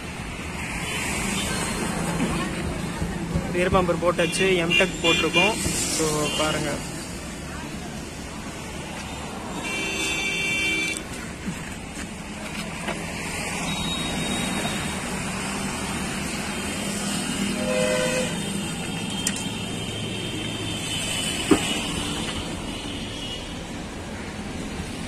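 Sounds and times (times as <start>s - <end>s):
road traffic: 0.0s - 25.0s
vehicle horn toot: 9.6s - 11.0s, 17.6s - 18.4s.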